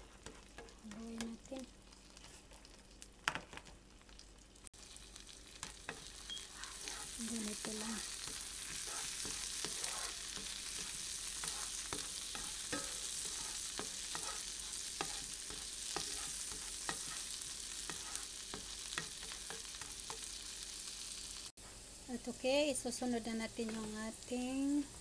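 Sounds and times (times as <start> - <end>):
spatula stirring in pan: 0.0 - 2.8, 4.8 - 20.8
garlic sizzling in butter: 0.0 - 25.0.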